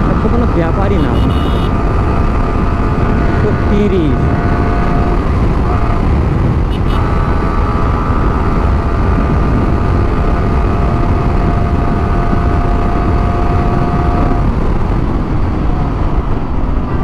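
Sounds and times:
motorcycle engine high revs: 0.0s - 14.6s
wind rush on microphone: 0.0s - 17.0s.

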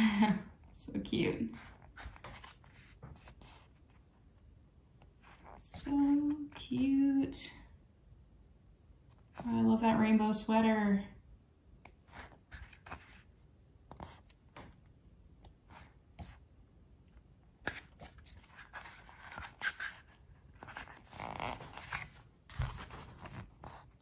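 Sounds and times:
pages turning and rustling: 1.6s - 4.0s, 12.1s - 13.4s, 17.6s - 24.0s.

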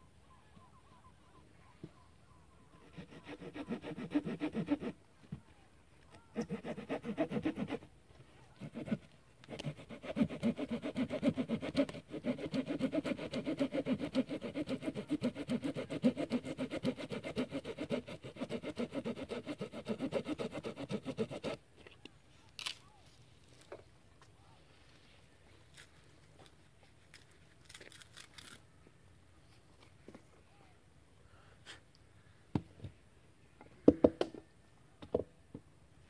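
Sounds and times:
hand saw cutting branch: 2.9s - 5.0s, 6.4s - 7.9s, 8.6s - 21.6s.

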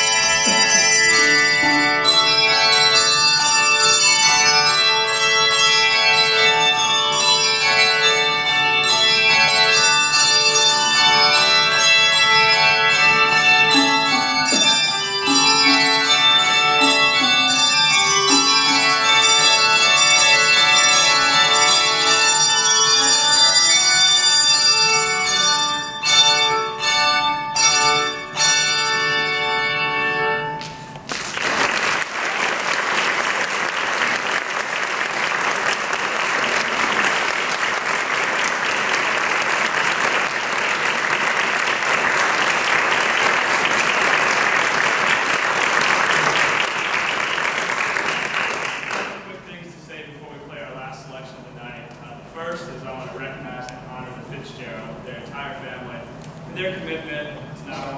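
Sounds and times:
handbell choir ringing chords: 0.0s - 30.6s
audience applause: 31.0s - 49.2s.

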